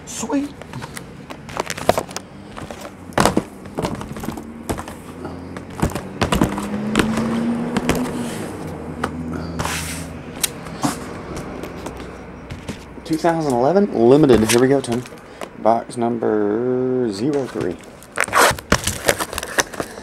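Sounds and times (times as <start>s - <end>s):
card boxes knocking on table: 2.6s - 5.0s, 5.6s - 8.1s.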